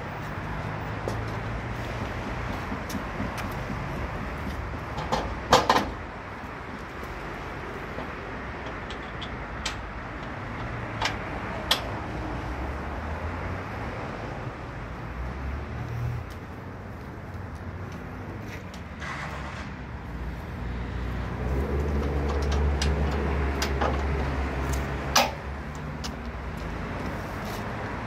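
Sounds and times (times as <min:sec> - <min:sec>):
metallic clunks and clicks: 0:08.0 - 0:11.9, 0:21.8 - 0:26.3.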